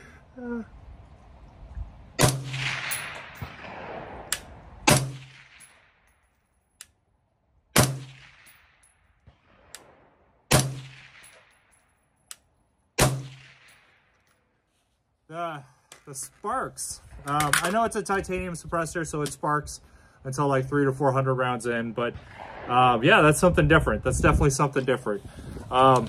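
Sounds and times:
suppressed rifle shots with echo: 2.2s - 6.3s, 7.7s - 11.8s, 13.0s - 14.2s, 22.1s - 23.0s.

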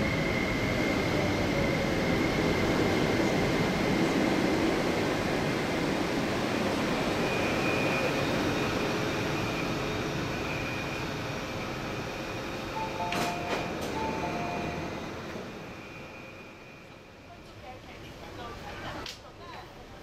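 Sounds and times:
electric train slowing to a stop: 0.0s - 17.6s
train doors clunking open: 12.8s - 14.8s
two-tone door chime: 12.8s - 15.4s.

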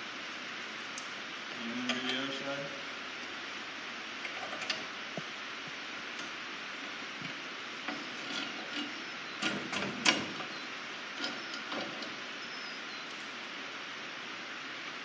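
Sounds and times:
metal parts clicking and clinking: 13.1s - 13.4s.

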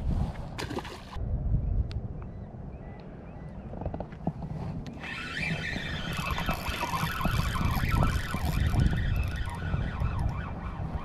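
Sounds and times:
wind rumbling on microphone: 0.0s - 11.0s
fishing reel whirring: 5.0s - 10.3s.

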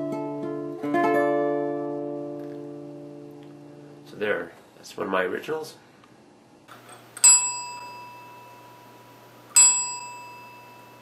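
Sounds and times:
desk service bell ding: 6.8s - 11.0s.

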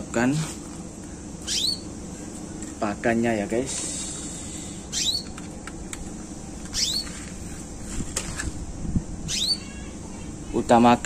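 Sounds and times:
canary call notes: 1.4s - 1.9s, 4.9s - 5.4s, 6.7s - 7.1s, 9.3s - 10.3s.

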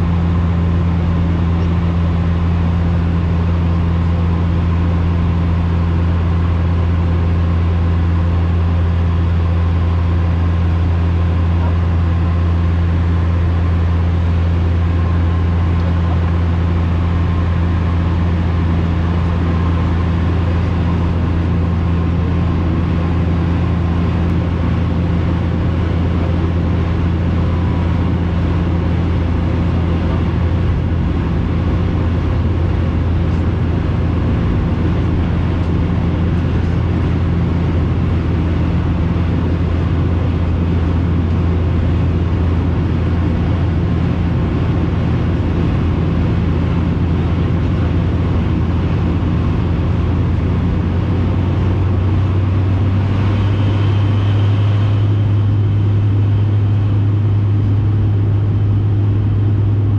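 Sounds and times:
propeller drone: 0.0s - 59.9s
rushing air noise: 50.7s - 57.3s.

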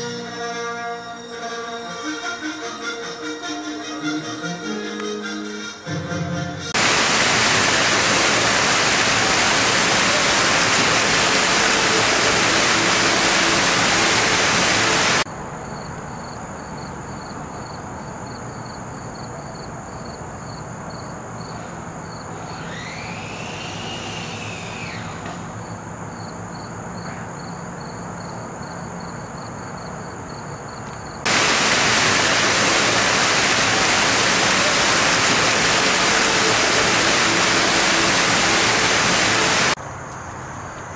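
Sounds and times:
loud white noise hiss: 6.7s - 15.7s, 21.2s - 26.9s, 31.2s - 40.9s.

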